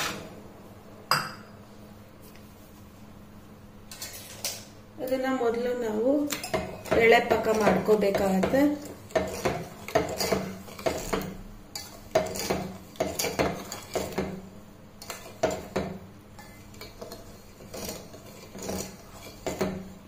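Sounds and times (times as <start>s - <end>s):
spoon scraping and clinking in pot: 3.9s - 4.7s, 6.2s - 14.4s, 15.0s - 20.0s.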